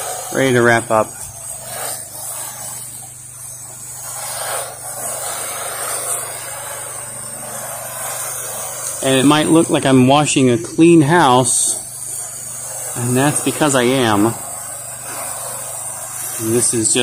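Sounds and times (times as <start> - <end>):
pressure washer engine hum: 0.0 - 17.0
water spray hissing: 0.0 - 17.0.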